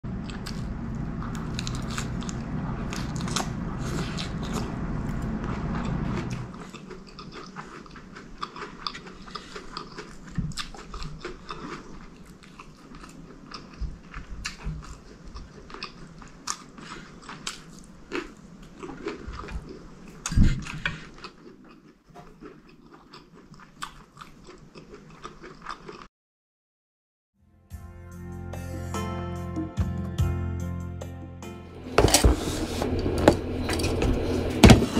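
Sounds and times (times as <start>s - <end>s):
wet chewing and mouth clicks: 0.2s - 26.1s
heavy thump: 31.9s - 34.9s.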